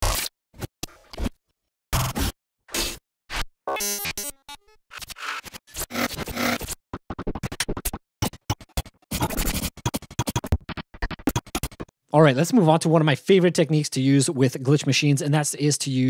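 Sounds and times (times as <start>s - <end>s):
glitchy stuttering sound effects: 4.9s - 11.9s.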